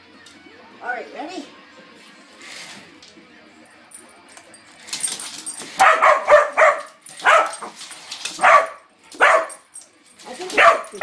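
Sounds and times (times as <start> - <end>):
dog barking: 5.8 - 7.8, 8.4 - 9.7, 10.5 - 11.0.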